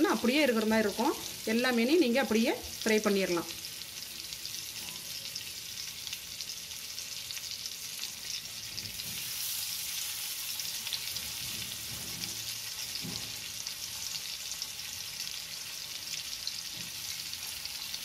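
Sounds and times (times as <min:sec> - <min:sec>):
fish sizzling in oil: 0:00.0 - 0:18.0.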